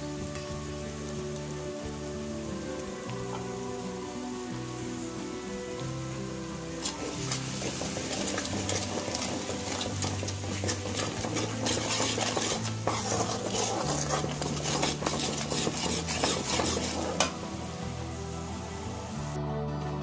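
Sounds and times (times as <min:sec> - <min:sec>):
oil sizzling: 0:00.0 - 0:19.4
metal spoon scraping pan: 0:06.8 - 0:17.4.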